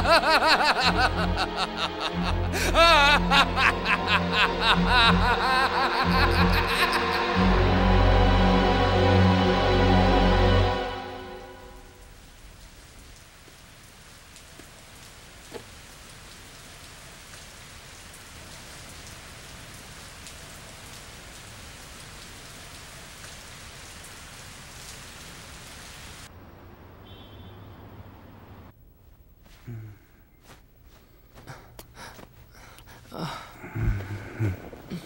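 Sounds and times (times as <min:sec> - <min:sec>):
rain hissing: 0:00.0 - 0:26.9
raindrop ticks: 0:12.0 - 0:25.1.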